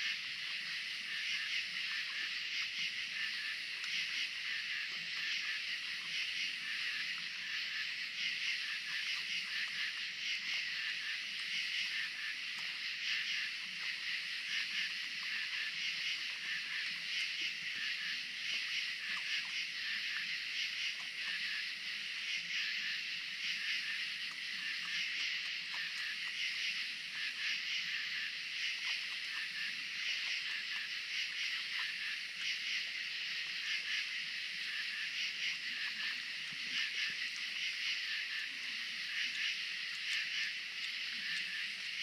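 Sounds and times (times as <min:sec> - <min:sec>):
night insects buzzing: 0:00.0 - 0:42.0.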